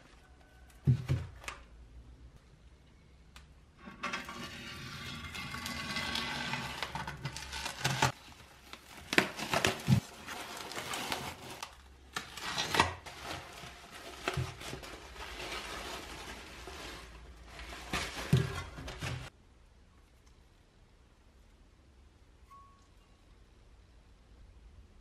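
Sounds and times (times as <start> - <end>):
paper towels rustling: 7.4 - 19.3.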